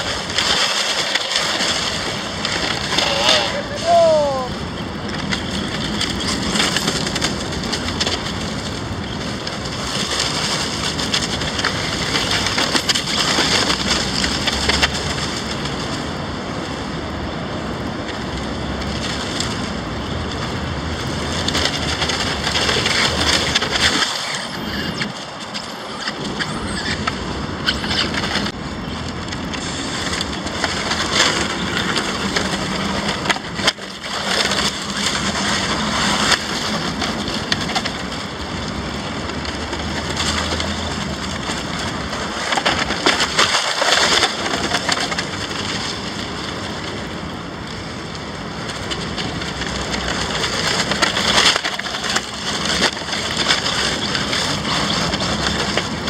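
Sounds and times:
tyres sliding over loose dirt: 0.0 - 56.0
wind noise on microphone: 0.0 - 56.0
electric rc car motor: 21.4 - 28.5.

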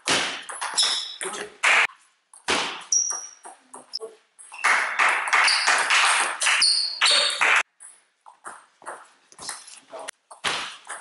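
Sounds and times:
table tennis ball pinging: 10.3 - 11.0.

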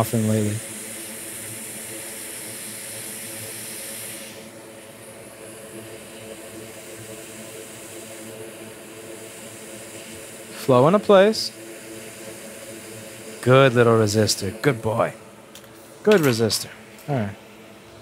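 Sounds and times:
hot air blower hissing: 0.0 - 18.0
low fan hum: 0.0 - 18.0.

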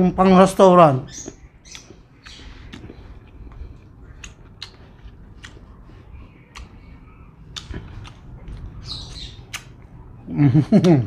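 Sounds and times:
chewing: 1.3 - 9.9.

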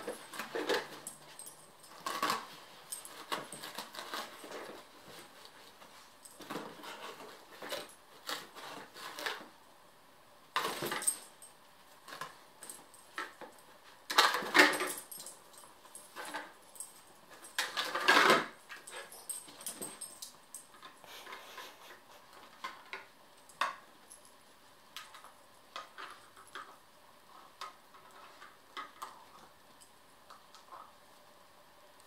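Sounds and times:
collar tags jingling: 14.5 - 20.9.

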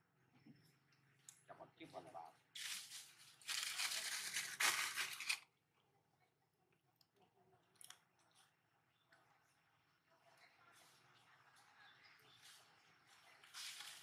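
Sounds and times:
dry rustling and crinkling: 2.5 - 5.4, 13.4 - 14.0.

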